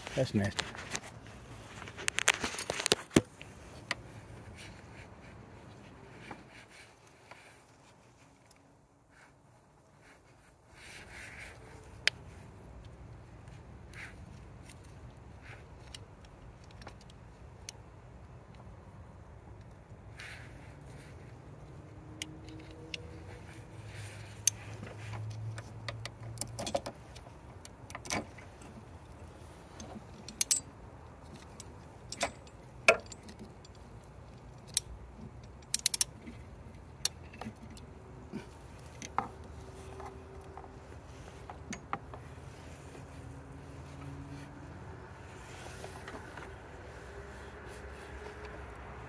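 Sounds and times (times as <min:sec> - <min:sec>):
metal hand tools clinking: 0:30.3 - 0:30.8, 0:31.4 - 0:33.8.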